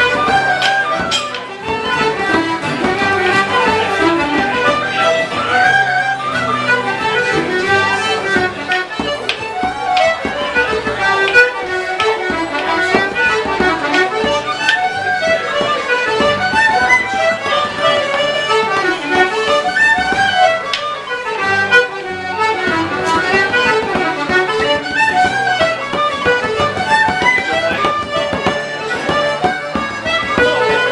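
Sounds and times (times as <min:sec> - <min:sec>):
tin whistles playing melody: 0:00.0 - 0:01.4, 0:04.6 - 0:07.2, 0:19.4 - 0:20.8.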